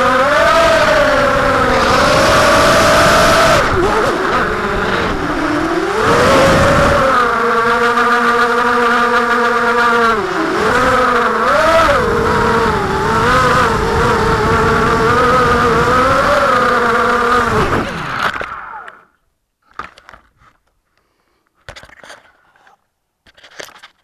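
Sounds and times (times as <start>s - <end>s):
drone motors and propellers whining: 0.0s - 19.2s.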